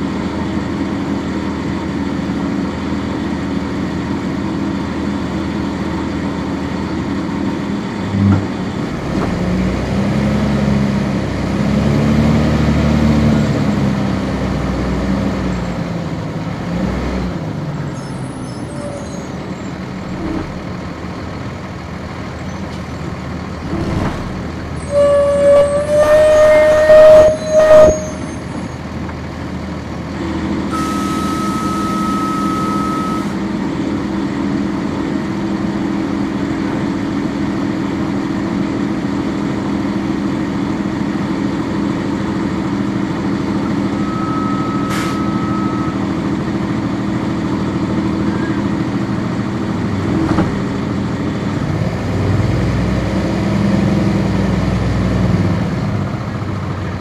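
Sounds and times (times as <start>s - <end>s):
diesel bus engine running: 0.0s - 57.0s
high tone with air hiss: 30.7s - 33.4s.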